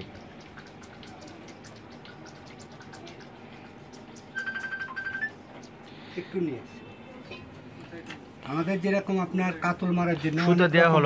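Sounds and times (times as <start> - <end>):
high electronic beeps: 4.3 - 5.4.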